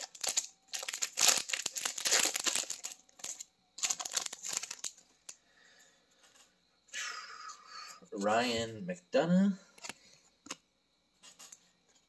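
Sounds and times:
foil wrapper crinkling and tearing: 0:00.0 - 0:05.0.

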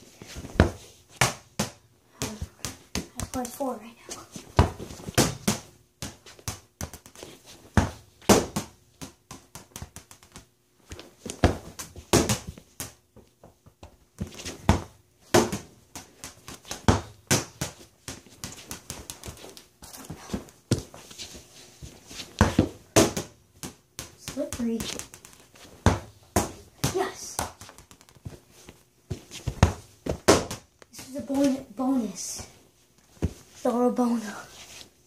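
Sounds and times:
ball bouncing on a wooden floor: 0:00.5 - 0:03.6, 0:04.5 - 0:21.0, 0:22.3 - 0:28.4, 0:29.1 - 0:30.8.

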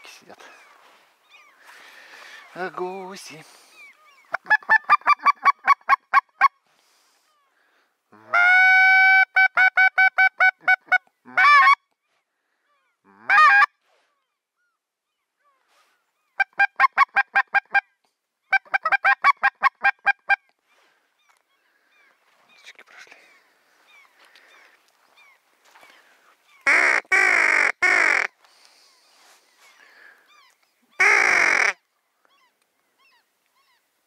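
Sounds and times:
geese honking: 0:04.3 - 0:06.5, 0:16.4 - 0:17.8, 0:26.5 - 0:28.3, 0:31.0 - 0:31.8.

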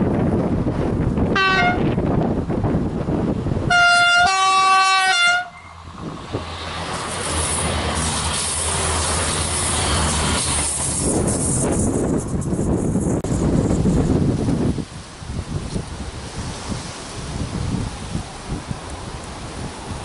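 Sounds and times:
train rumbling past: 0:00.0 - 0:20.0
two-tone train horn: 0:01.3 - 0:02.0, 0:03.7 - 0:05.8.

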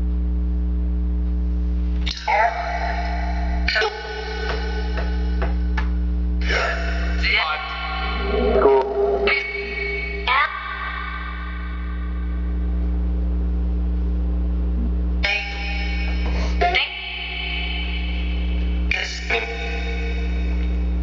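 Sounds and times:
steady low hum: 0:00.0 - 0:21.0
chopped music and voice fragments: 0:06.4 - 0:10.5.

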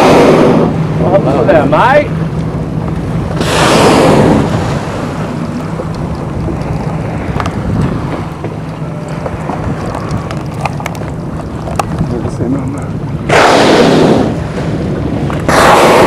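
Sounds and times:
boat engine humming: 0:00.0 - 0:16.0
sea lapping: 0:00.0 - 0:16.0
wind on microphone: 0:00.0 - 0:16.0
whale blow whoosh: 0:03.4 - 0:05.6, 0:13.3 - 0:16.0.

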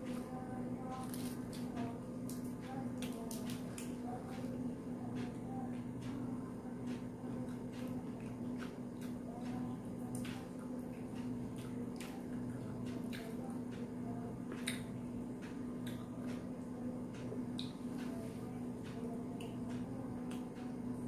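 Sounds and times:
steady low hum: 0:00.0 - 0:21.0
wet eating by hand: 0:00.0 - 0:21.0
chewing: 0:07.3 - 0:16.5.

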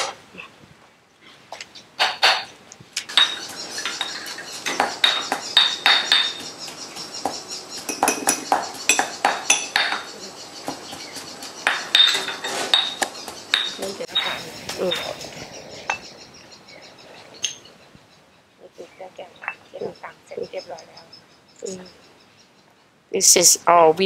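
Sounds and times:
sharp clinks: 0:03.1 - 0:06.5, 0:07.9 - 0:10.1, 0:11.6 - 0:15.1
pestle pounding in stone mortar: 0:03.1 - 0:13.9.

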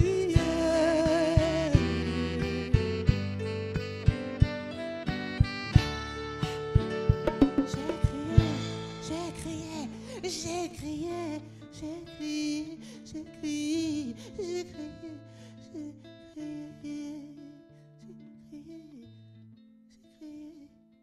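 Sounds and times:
woman singing into a microphone: 0:00.0 - 0:03.6, 0:07.5 - 0:19.2, 0:19.9 - 0:20.8.

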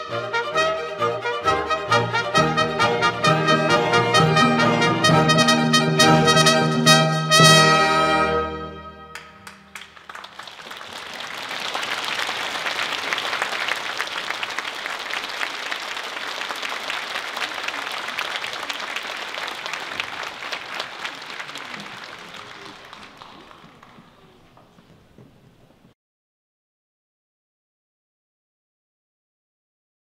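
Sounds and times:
trumpet and orchestra chord: 0:00.0 - 0:09.8
audience applauding: 0:09.1 - 0:25.1.

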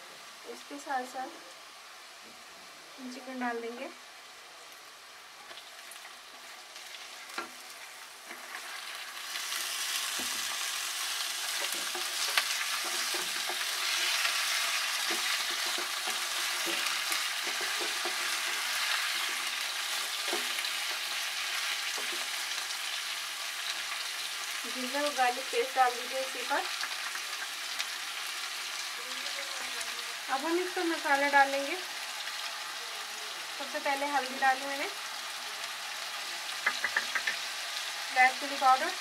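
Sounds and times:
chicken sizzling in oil: 0:00.0 - 0:39.0
spatula scraping pan: 0:11.5 - 0:22.4.

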